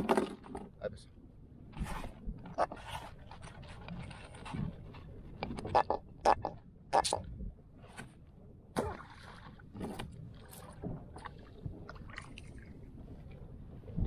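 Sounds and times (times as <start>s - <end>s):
small water splashes: 8.8s - 13.4s.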